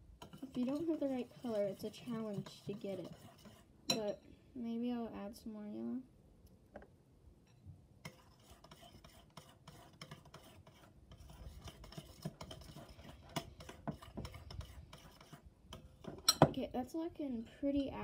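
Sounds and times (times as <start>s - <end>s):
spoon scraping slime in bowl: 0.2s - 4.1s, 8.0s - 16.4s.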